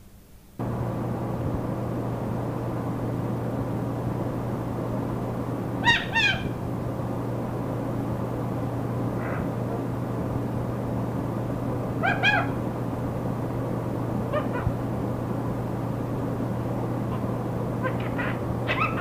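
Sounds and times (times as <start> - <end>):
static hiss with low hum: 0.0 - 19.0
parakeet calls: 5.8 - 6.6, 9.1 - 9.8, 12.0 - 12.6, 14.3 - 14.9, 17.1 - 19.0.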